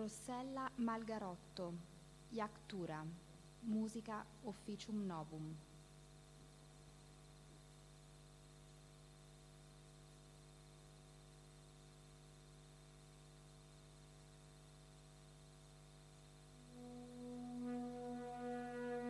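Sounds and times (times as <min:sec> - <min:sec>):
low electrical hum: 0:00.0 - 0:19.0
music with long held tones: 0:16.5 - 0:19.0.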